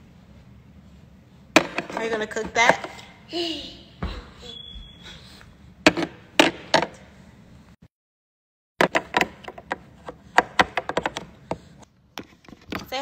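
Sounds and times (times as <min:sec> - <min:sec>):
plastic toy pieces knocking: 0:10.4 - 0:11.3.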